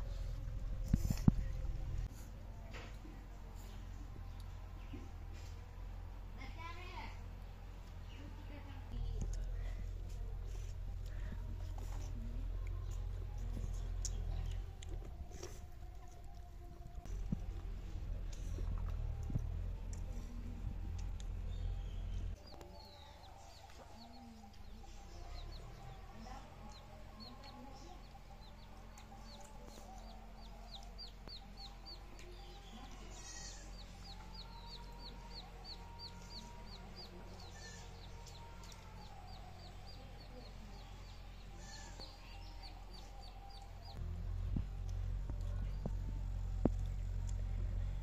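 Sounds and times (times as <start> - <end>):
low rumble: 0.0 - 6.4, 7.0 - 48.0
small bird chirping: 21.4 - 44.0.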